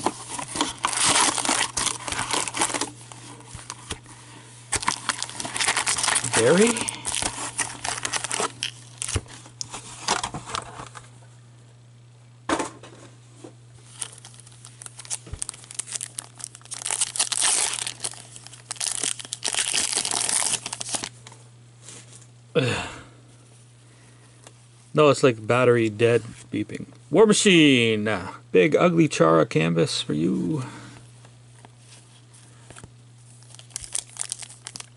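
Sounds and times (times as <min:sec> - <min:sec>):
foil wrappers crinkling and tearing: 0:00.0 - 0:11.0, 0:13.8 - 0:21.2, 0:32.8 - 0:34.9.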